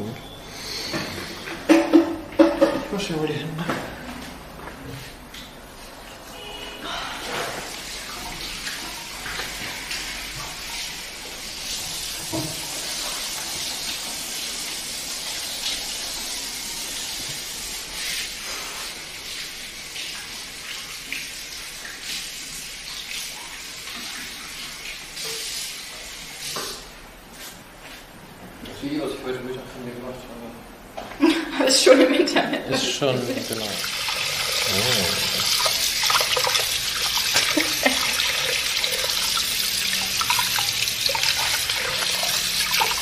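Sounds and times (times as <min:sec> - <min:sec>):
water running from tap: 0:07.2 - 0:26.8, 0:32.8 - 0:43.0.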